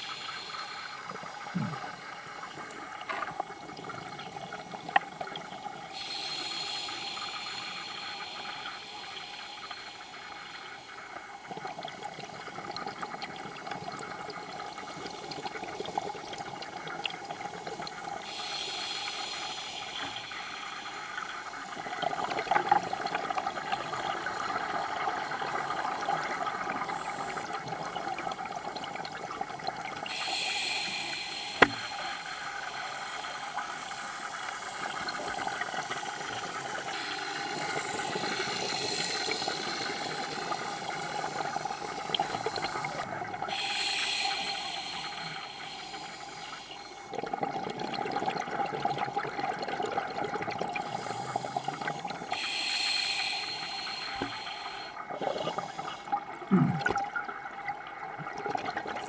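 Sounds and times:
underwater regulator breathing: 0:05.9 - 0:10.8, 0:18.2 - 0:21.6, 0:30.0 - 0:47.3, 0:50.8 - 0:57.0.

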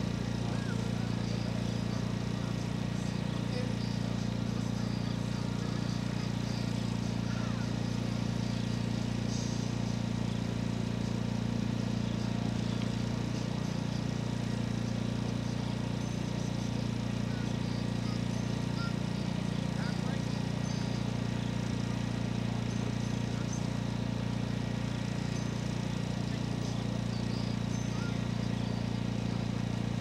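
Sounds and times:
engine idling: 0:00.0 - 0:30.0.

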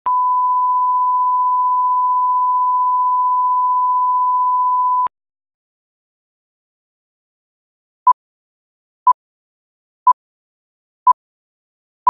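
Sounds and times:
pure test tone beep: 0:00.1 - 0:05.1.

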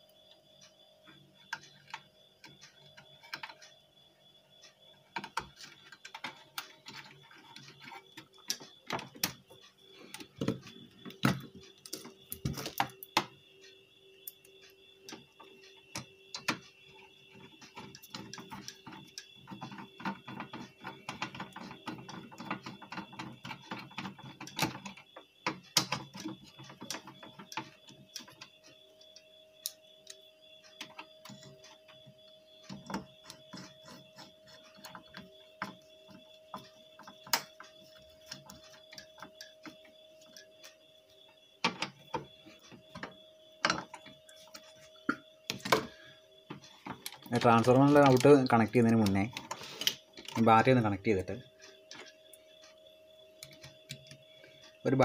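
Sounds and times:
clicks and rattles of metal parts: 0:46.5 - 0:52.2.

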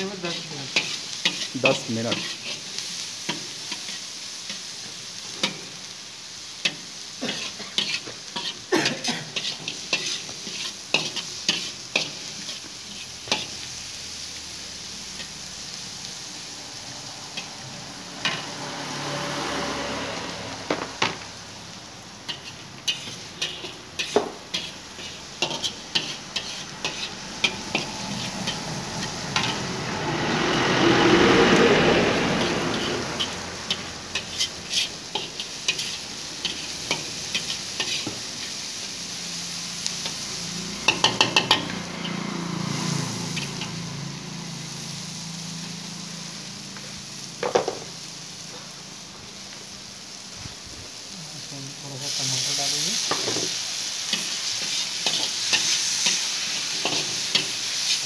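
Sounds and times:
food sizzling in hot oil: 0:00.0 - 0:58.0
metal spatula scraping iron pan: 0:06.7 - 0:13.6, 0:22.3 - 0:29.7, 0:32.4 - 0:38.2
loud rushing sound: 0:27.2 - 0:34.1.

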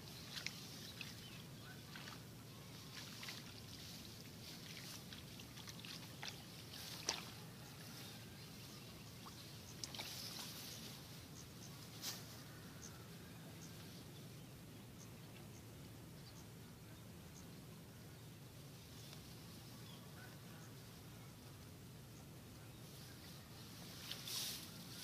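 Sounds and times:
muddy water sloshing: 0:00.0 - 0:08.3, 0:09.0 - 0:10.6.

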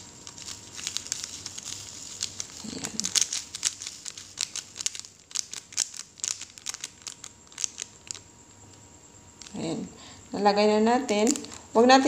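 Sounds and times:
plastic bag crinkling: 0:00.0 - 0:08.3.

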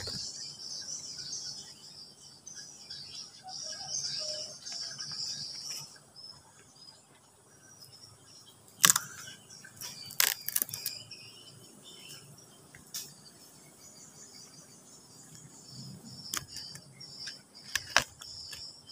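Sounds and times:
insect chirring: 0:07.7 - 0:18.9.

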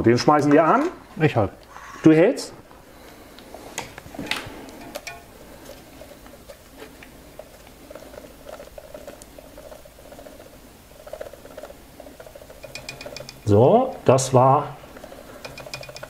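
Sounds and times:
grass applicator rattling: 0:04.7 - 0:05.5, 0:08.4 - 0:13.8, 0:14.9 - 0:16.0.

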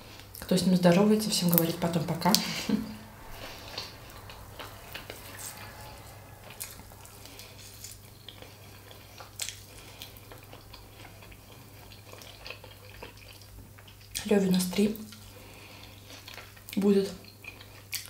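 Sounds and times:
steady low hum: 0:00.0 - 0:12.3
wet chewing sounds: 0:03.0 - 0:18.0.

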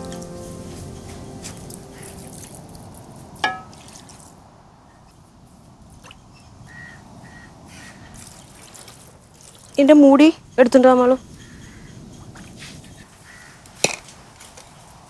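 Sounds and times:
water trickling and dripping: 0:01.4 - 0:04.5, 0:08.0 - 0:10.3.

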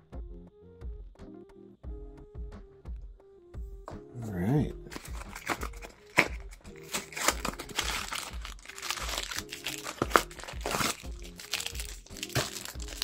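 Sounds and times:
quiet background music: 0:00.0 - 0:13.0
packaging crinkling and crackling: 0:04.9 - 0:13.0.

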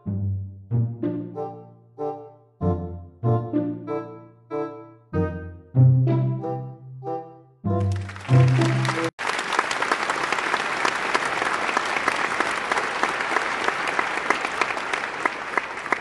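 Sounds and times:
music: 0:00.0 - 0:09.1
audience applauding: 0:07.8 - 0:16.0.

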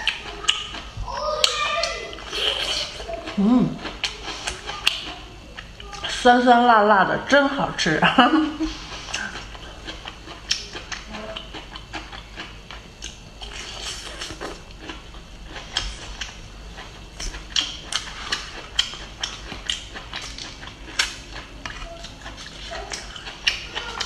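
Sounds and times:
crunchy bites and chewing: 0:09.0 - 0:24.0.

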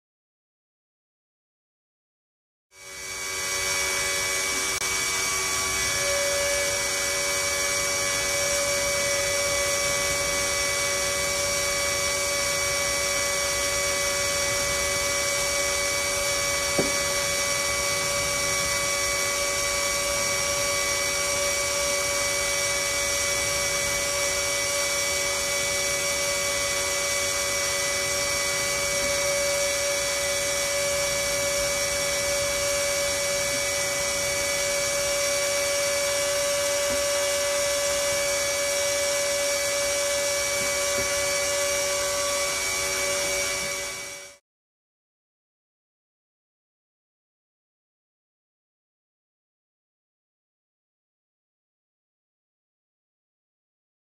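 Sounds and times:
pump motor whining: 0:02.8 - 0:44.4.

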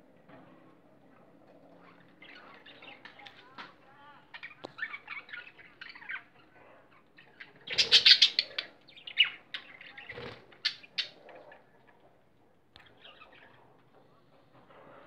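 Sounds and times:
budgerigars chattering: 0:07.2 - 0:11.2.

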